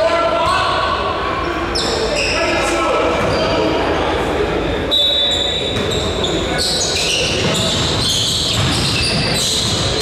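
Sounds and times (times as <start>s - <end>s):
sneaker squeaks: 1.4s - 4.0s, 4.9s - 10.0s
basketball bouncing: 7.2s - 10.0s.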